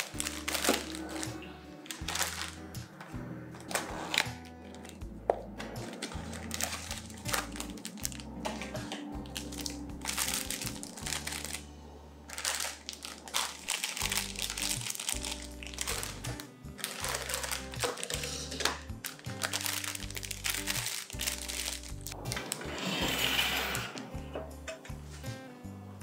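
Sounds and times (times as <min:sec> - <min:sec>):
plastic packaging crinkling: 0:00.0 - 0:02.6, 0:03.6 - 0:05.0, 0:05.9 - 0:11.7, 0:12.3 - 0:22.6
background music with bass line: 0:00.0 - 0:26.0.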